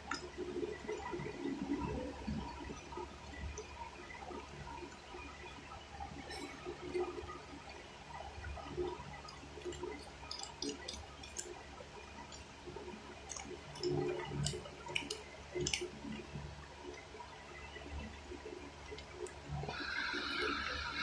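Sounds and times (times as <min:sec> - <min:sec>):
steady low hum: 0:00.0 - 0:21.0
wet chewing: 0:09.3 - 0:16.2.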